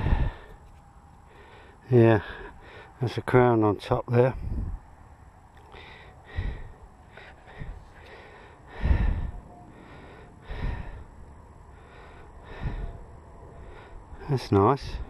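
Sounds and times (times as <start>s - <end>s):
puffs of breath: 0.0s - 3.0s, 5.7s - 14.2s.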